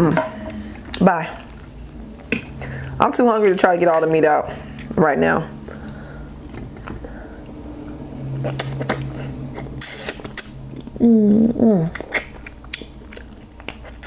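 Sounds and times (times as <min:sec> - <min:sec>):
close-miked eating: 0:00.5 - 0:14.0
person humming mmm: 0:08.1 - 0:12.3.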